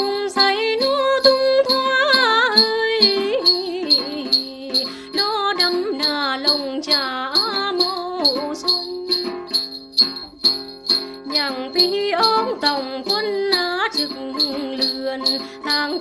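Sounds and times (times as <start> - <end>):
plucked lute: 0.0 - 16.0
woman singing folk song: 0.0 - 16.0
shaken jingling bells: 6.0 - 12.8, 13.5 - 16.0.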